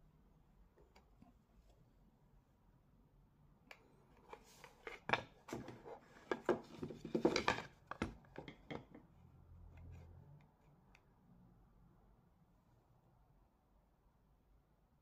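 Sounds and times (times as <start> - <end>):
metal and board knocking and tapping: 5.1 - 9.1.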